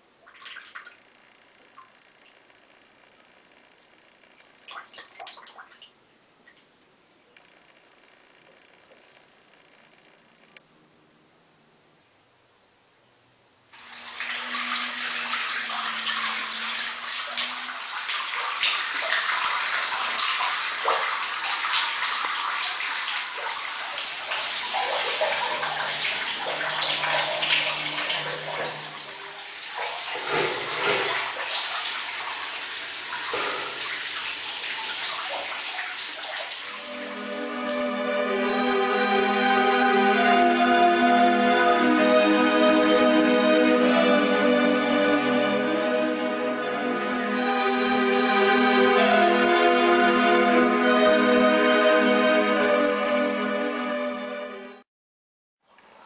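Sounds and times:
falling water rushing: 13.8s - 40.4s.

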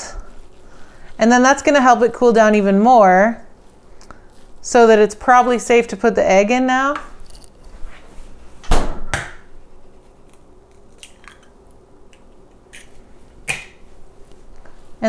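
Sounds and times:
eggshell clicking apart: 10.2s - 12.9s.

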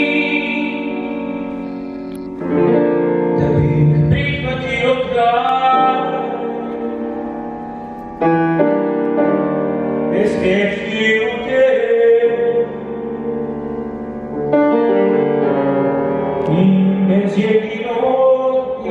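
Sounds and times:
man singing into a microphone: 0.0s - 1.8s, 3.4s - 7.2s, 10.1s - 13.3s, 16.4s - 18.9s
piano accompaniment: 0.0s - 18.9s.

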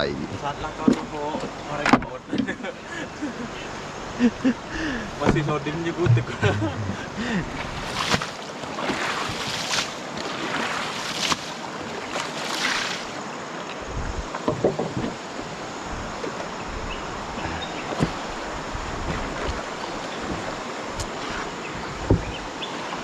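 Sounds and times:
wind noise on microphone: 5.3s - 8.0s, 13.8s - 14.3s, 15.8s - 17.6s
rushing splashing water: 5.3s - 14.4s.

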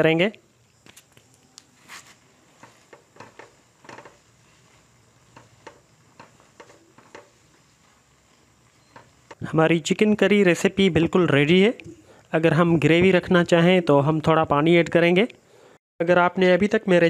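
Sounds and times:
oil sizzling: 1.4s - 10.7s
spatula scraping a wok: 1.8s - 9.4s.

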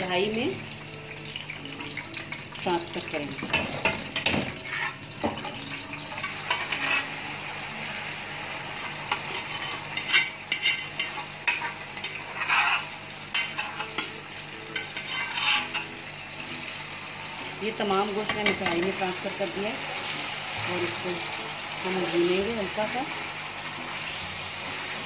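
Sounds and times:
oil sizzling: 0.0s - 25.0s.

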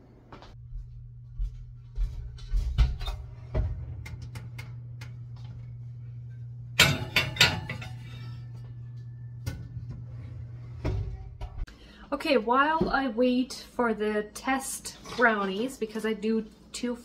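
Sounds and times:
steady low hum: 0.0s - 12.1s
metal pan clattering on rack: 6.8s - 8.6s.

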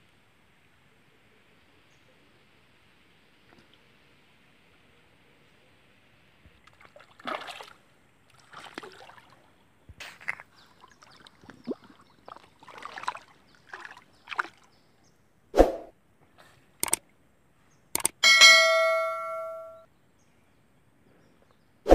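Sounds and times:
water sloshing and splashing: 6.5s - 14.8s.

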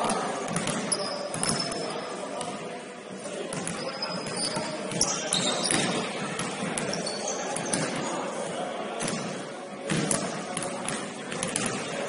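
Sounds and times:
basketball play knocks and thuds: 0.4s - 1.7s, 9.0s - 11.9s.

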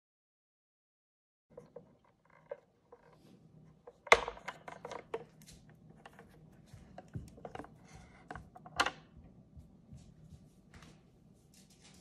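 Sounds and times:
latch and lid clicks and knocks: 3.9s - 5.4s, 7.3s - 9.1s.

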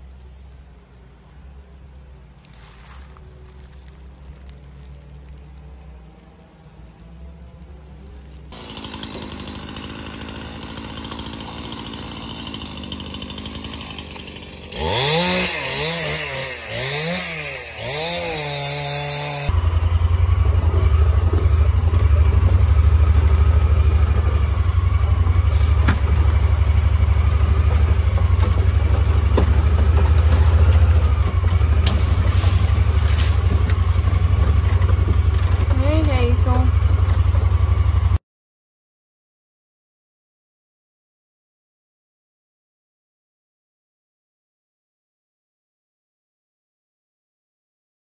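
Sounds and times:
engine hum: 0.0s - 38.2s
loud low engine drone: 0.0s - 38.2s
engine revving: 3.5s - 38.2s.

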